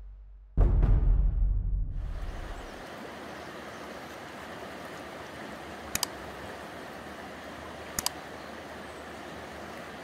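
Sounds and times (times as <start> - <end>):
river rushing: 2.0 - 10.0.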